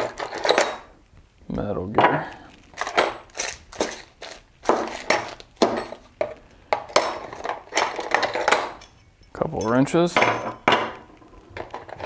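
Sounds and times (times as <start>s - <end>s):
metal tools clattering: 0.0s - 0.9s, 2.8s - 6.1s, 6.9s - 11.0s.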